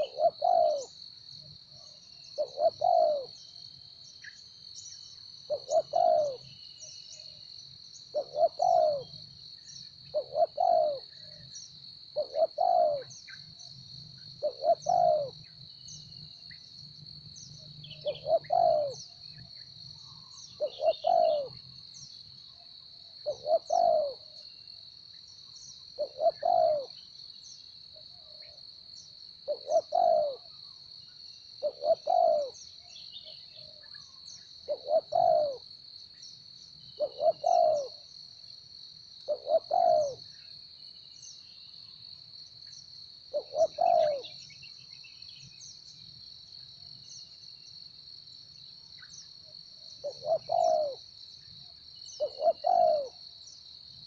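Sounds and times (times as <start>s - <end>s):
dove cooing: 0.0s - 1.0s, 2.4s - 3.4s, 5.5s - 6.5s, 8.1s - 9.2s, 10.1s - 11.5s, 12.2s - 13.2s, 14.4s - 15.4s, 17.9s - 19.0s, 20.6s - 21.6s, 23.2s - 24.4s, 26.0s - 27.0s, 29.4s - 30.6s, 31.6s - 32.6s, 34.7s - 35.6s, 37.0s - 38.0s, 39.2s - 40.2s, 43.3s - 44.4s, 50.0s - 51.0s, 52.2s - 53.2s.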